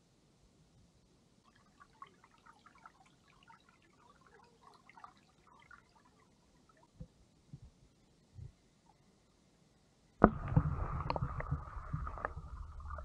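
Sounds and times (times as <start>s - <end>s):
creek water trickling over rocks: 1.4s - 7.0s, 10.3s - 13.0s.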